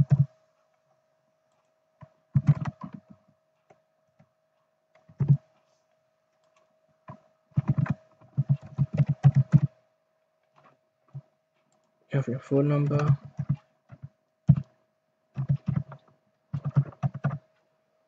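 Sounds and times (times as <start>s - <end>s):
keyboard typing: 0.0s - 0.4s, 1.6s - 3.8s, 5.0s - 5.5s, 6.4s - 9.8s, 12.5s - 14.8s, 15.4s - 17.6s.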